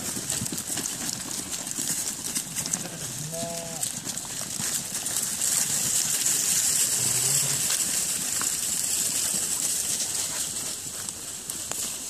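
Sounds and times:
hooves trampling through grass: 0.0s - 12.0s
sheep bleat: 2.7s - 3.9s.

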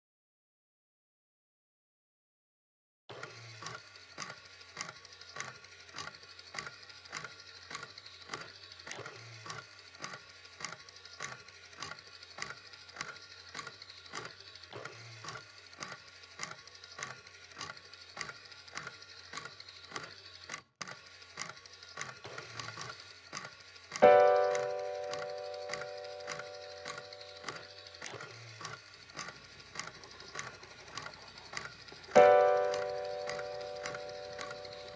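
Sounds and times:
steady ticking: 24.0s - 34.9s.

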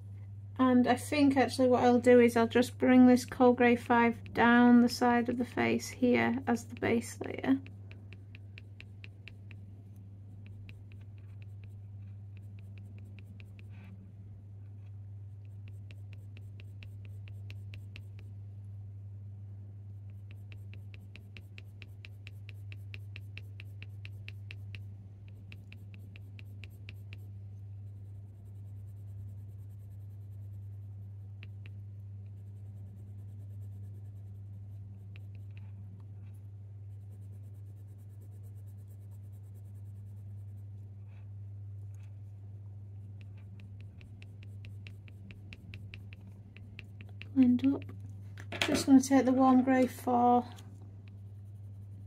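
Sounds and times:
steady low hum: 0.0s - 52.0s
pencil scratching on paper: 2.0s - 14.0s, 15.2s - 18.3s, 19.9s - 42.3s, 43.0s - 48.0s, 49.4s - 52.0s.

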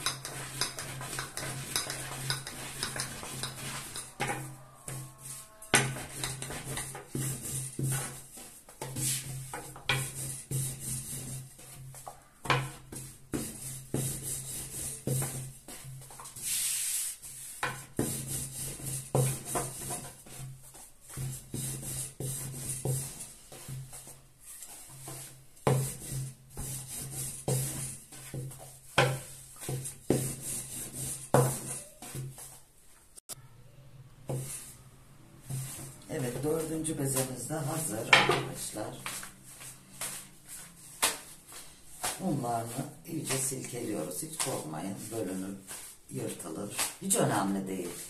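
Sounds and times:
rolling pin rolling dough: 0.0s - 32.7s, 34.2s - 48.0s.

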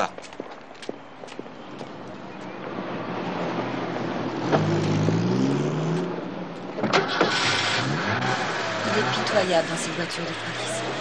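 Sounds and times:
car engine speeding up: 3.3s - 6.4s, 7.0s - 11.0s.

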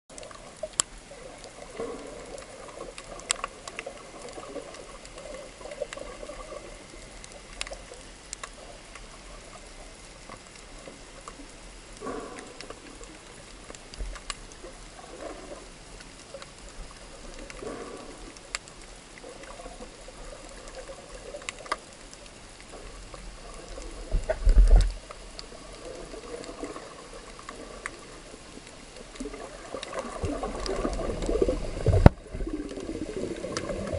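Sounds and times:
sharp underwater clicks: 0.1s - 33.9s
muffled underwater swishing: 22.6s - 33.9s.

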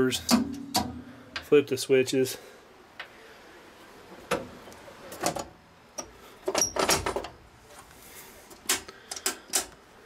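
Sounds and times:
metal levers clicking and clunking: 0.2s - 1.5s, 5.1s - 7.4s.

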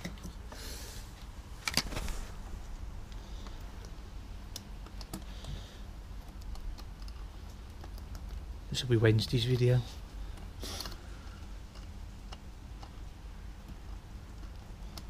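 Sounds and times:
soft brushing sounds: 0.8s - 3.4s
throttle cable clicks and rattles: 3.1s - 13.0s.

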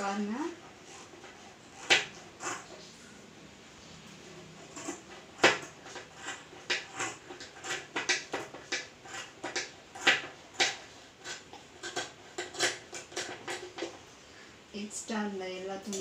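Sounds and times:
scissors snipping through fabric: 4.7s - 13.7s.

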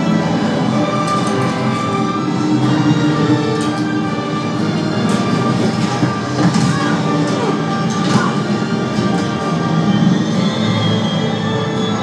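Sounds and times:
film soundtrack music over speakers: 0.0s - 12.0s.

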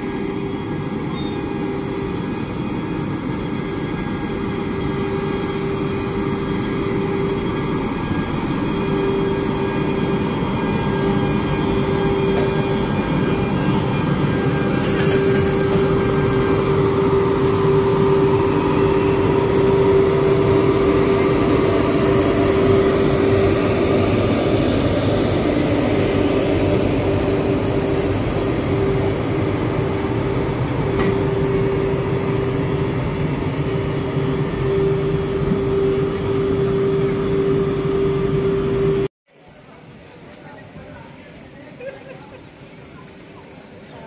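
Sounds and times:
wheels rumbling on rails: 0.0s - 39.1s
locomotive electrics humming: 0.0s - 44.0s.

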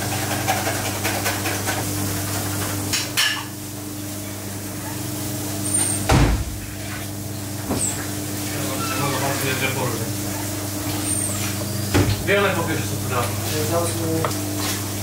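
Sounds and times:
heavy thump: 6.1s - 6.6s.

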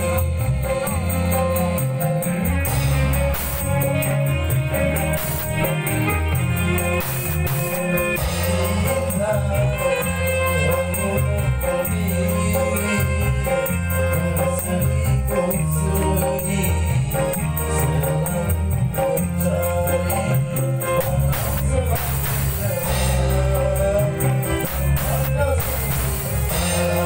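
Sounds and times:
fast high ticking beat: 0.0s - 13.2s, 20.6s - 27.0s
electric bass guitar: 0.0s - 27.0s.

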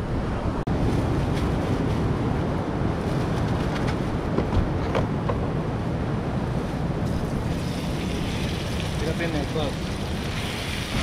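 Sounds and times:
wind buffeting microphone: 0.0s - 11.0s
surf washing: 5.6s - 11.0s.

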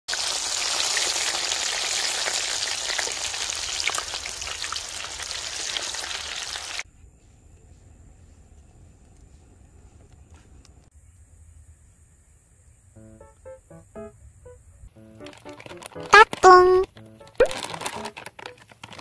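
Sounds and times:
shrimp deep-frying in oil: 0.1s - 6.8s.

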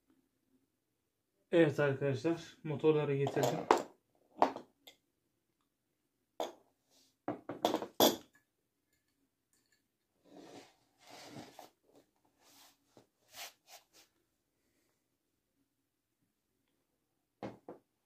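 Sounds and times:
metal knocks and clinks on tile: 3.2s - 5.0s, 7.3s - 9.8s
scraping and rustling: 10.3s - 11.8s.

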